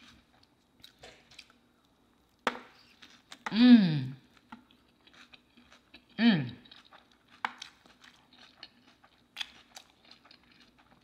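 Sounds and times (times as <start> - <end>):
person chewing: 0.0 - 11.0
person humming mmm: 3.5 - 4.3, 6.2 - 6.6.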